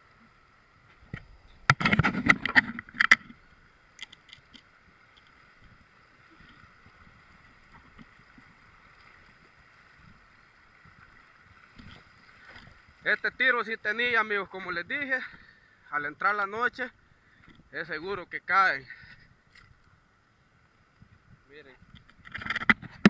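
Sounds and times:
small clicks: 1.1 - 5.7
water splashing and dripping: 3.9 - 13.4.

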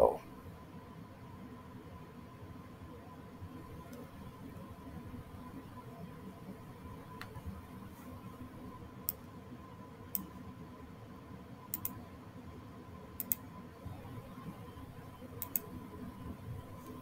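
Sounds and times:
faint high hum: 0.0 - 17.0
computer mouse clicking: 11.7 - 12.0, 13.2 - 13.4, 15.4 - 15.8.

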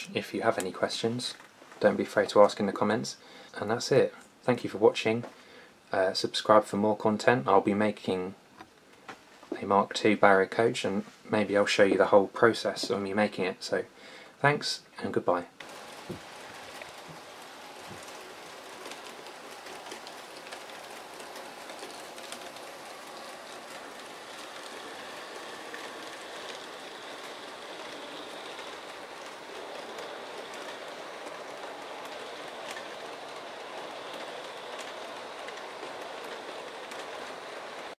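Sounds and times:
model train wheels rolling on rail: 0.0 - 5.0, 15.6 - 38.0
faint clicks: 18.8 - 37.4.

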